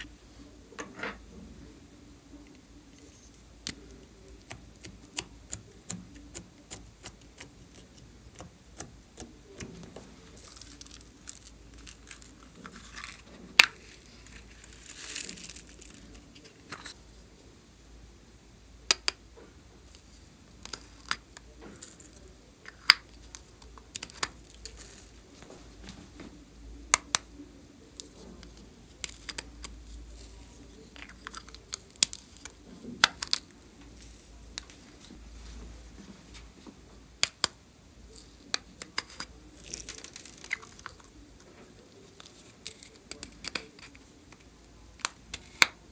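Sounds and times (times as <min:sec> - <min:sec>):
plastic pots clicking and tapping: 0:03.6 - 0:13.8, 0:18.9 - 0:19.2, 0:20.6 - 0:24.8, 0:26.9 - 0:27.2, 0:31.0 - 0:33.4, 0:42.2 - 0:45.8.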